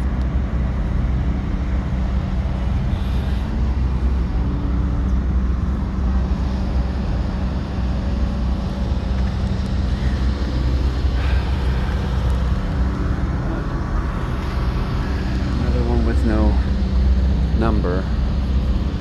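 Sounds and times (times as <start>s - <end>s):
faint steady hum: 0.0s - 19.0s
low outdoor rumble: 0.0s - 19.0s.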